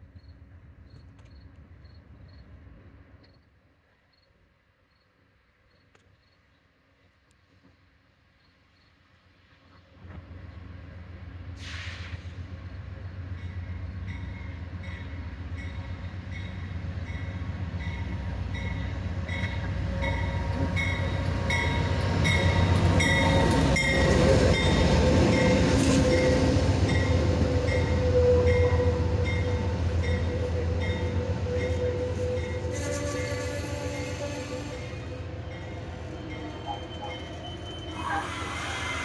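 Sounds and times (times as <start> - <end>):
train rumbling: 6.9 - 39.0
train brakes squealing: 11.6 - 12.8, 13.5 - 39.0.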